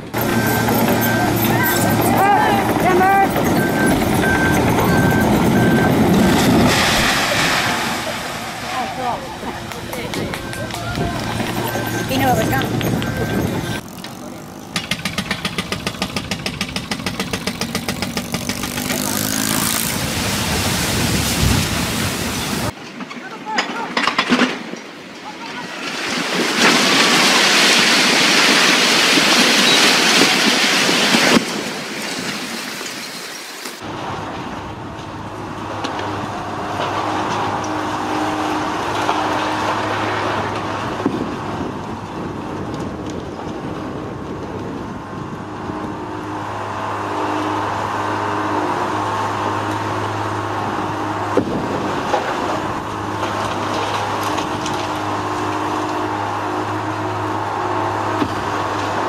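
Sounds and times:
diesel engine humming: 0.0 - 22.8, 33.8 - 59.0
concrete debris crashing down: 25.7 - 33.3.

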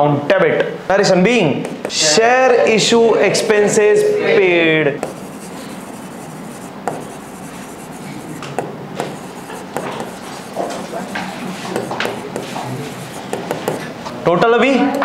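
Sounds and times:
pen scratching on paper: 5.0 - 14.0
light pen taps: 8.4 - 13.9.

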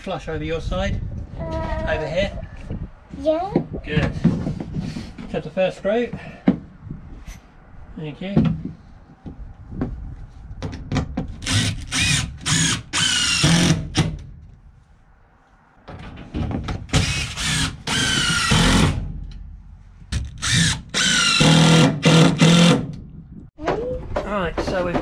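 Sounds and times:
impact driver driving screws: 11.4 - 14.2, 16.9 - 19.0, 20.2 - 23.0.

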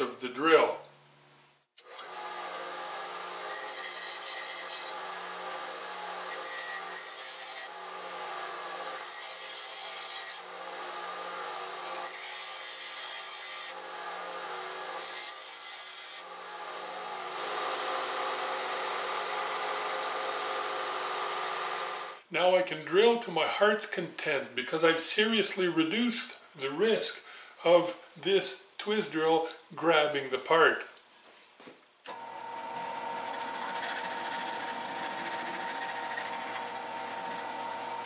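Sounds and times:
bench grinder running: 1.8 - 22.2, 32.1 - 38.0
drill bit grinding on wheel: 3.3 - 7.9, 8.9 - 10.5, 11.5 - 13.8, 14.6 - 16.2, 32.1 - 38.0.

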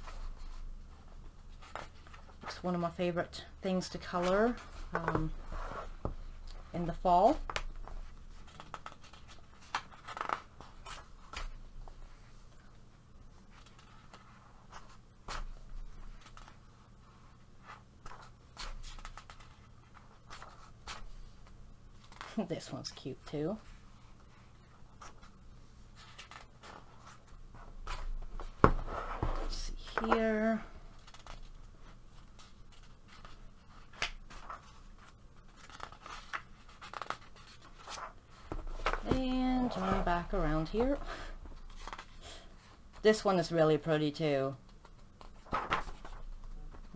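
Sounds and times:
paper pages rustling: 6.9 - 12.4, 13.3 - 22.4, 24.2 - 30.3, 31.0 - 43.0, 44.6 - 46.9
paper rustling: 32.2 - 42.2, 44.7 - 46.9.

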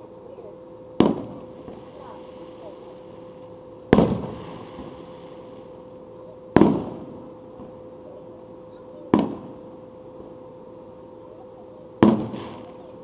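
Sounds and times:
steady faint tone: 0.0 - 13.0
fireworks shells booming: 0.9 - 2.7, 3.8 - 5.3, 6.5 - 7.8, 9.0 - 10.3, 12.0 - 12.9.

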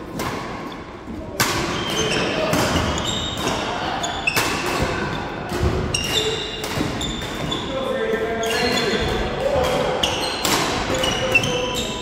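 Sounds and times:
shoes squeaking: 1.7 - 7.7, 8.4 - 9.2.

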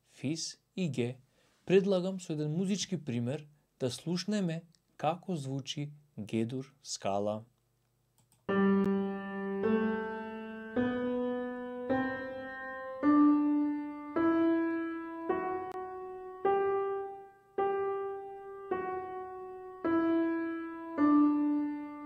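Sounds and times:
piano playing a scale: 8.5 - 22.0.

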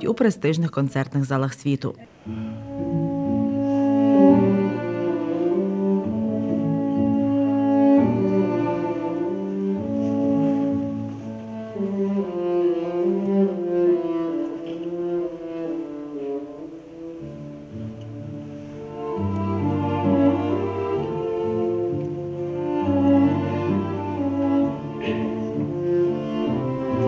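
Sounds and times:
string quartet playing classical music: 2.2 - 27.0.

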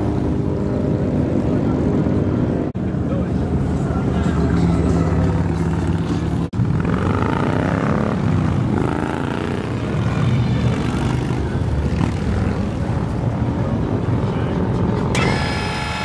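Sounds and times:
motorcycles riding past: 4.7 - 13.4.

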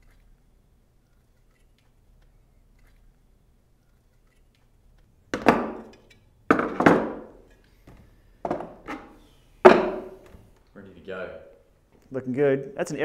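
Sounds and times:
tools knocking on workbench: 5.3 - 5.9, 6.5 - 7.3, 8.4 - 10.3.

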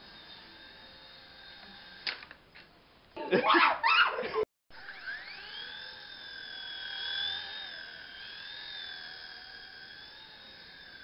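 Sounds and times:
toy helicopter motor whine: 0.0 - 2.4, 4.7 - 11.0.

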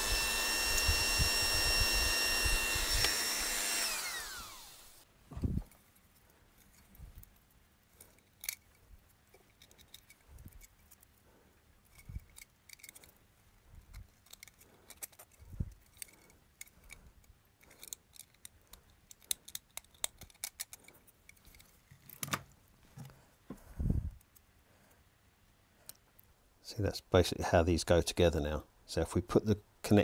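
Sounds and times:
knife cutting and scraping plastic: 5.4 - 23.2.

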